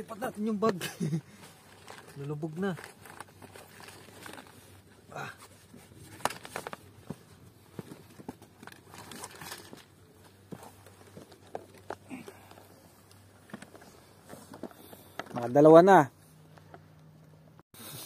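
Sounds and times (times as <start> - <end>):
fabric bag rustling: 1.0 - 12.3
footsteps on rocks: 5.6 - 12.7.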